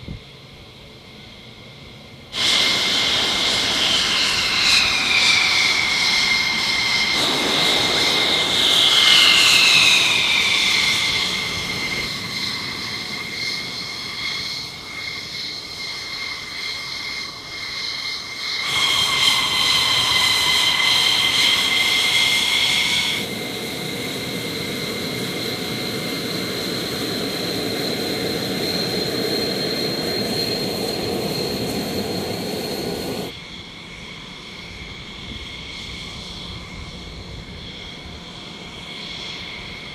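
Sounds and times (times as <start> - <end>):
jet engines whining: 1.1 - 39.9.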